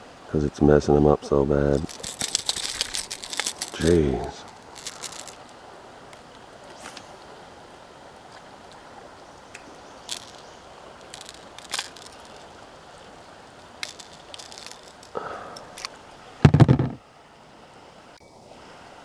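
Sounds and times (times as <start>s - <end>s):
soft water hiss: 0.0s - 19.0s
metallic clicks and rattles: 1.8s - 5.4s, 10.0s - 12.5s, 13.8s - 17.0s
loud bump: 16.4s - 17.0s.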